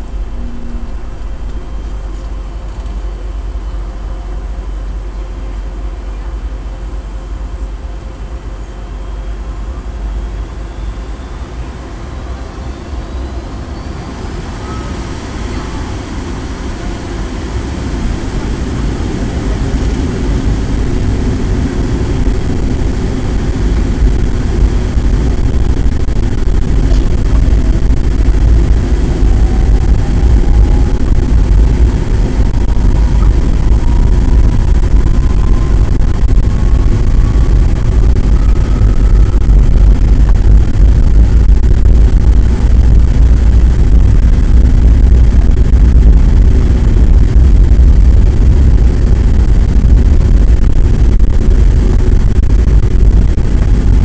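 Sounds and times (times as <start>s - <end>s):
faint rising whine: 0.0s - 54.0s
jet engine rumble in cabin: 0.0s - 54.0s.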